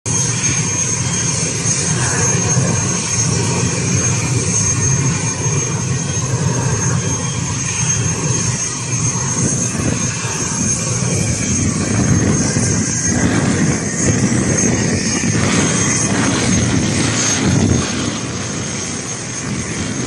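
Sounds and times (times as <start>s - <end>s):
high jet whine: 0.1s - 20.0s
jet engine noise: 0.1s - 20.0s.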